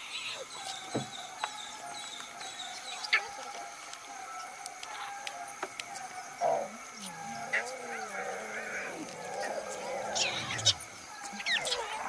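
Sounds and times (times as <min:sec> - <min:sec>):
lion growling: 0:06.4 - 0:10.8.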